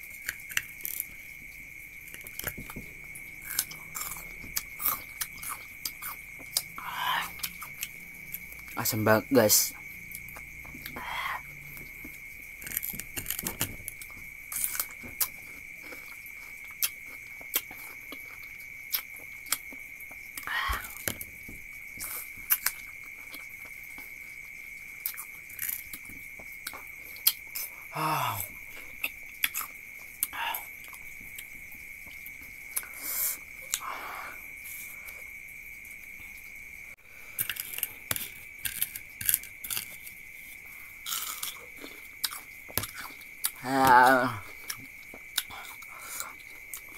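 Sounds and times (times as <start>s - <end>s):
crunching crisp fruit: 0.0s - 8.9s, 9.8s - 35.4s, 37.2s - 46.9s
person humming: 27.9s - 28.5s, 43.6s - 44.5s.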